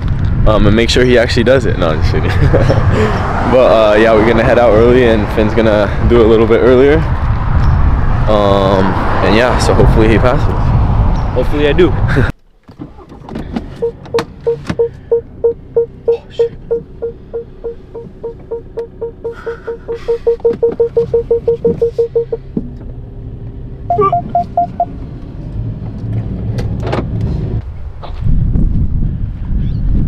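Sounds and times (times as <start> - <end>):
car engine starting and idling: 12.6 - 27.3
higher beeps: 13.8 - 22.4, 23.9 - 24.9
parking sensor beeps: 13.8 - 22.5, 23.9 - 24.9.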